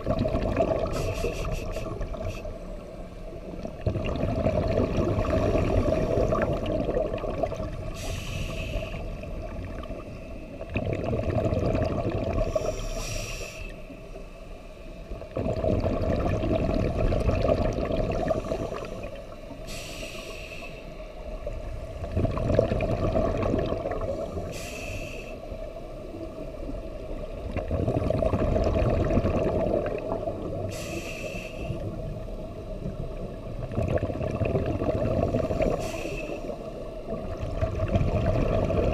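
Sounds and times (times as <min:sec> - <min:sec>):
exhaled bubbles rumbling: 0:00.0 - 0:02.4, 0:03.3 - 0:08.0, 0:08.7 - 0:12.8, 0:15.0 - 0:19.5, 0:21.2 - 0:24.7, 0:25.6 - 0:30.9, 0:31.7 - 0:38.9
regulator inhale hiss with whistle: 0:00.9 - 0:02.7, 0:07.9 - 0:09.2, 0:12.4 - 0:14.0, 0:18.3 - 0:21.0, 0:24.2 - 0:25.6, 0:30.7 - 0:31.8, 0:35.6 - 0:36.7.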